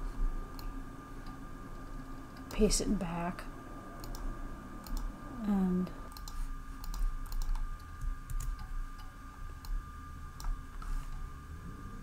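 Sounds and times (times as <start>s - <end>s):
faint steady hum: 0.0s - 12.0s
keyboard and mouse clicks: 4.0s - 5.1s, 6.1s - 9.8s.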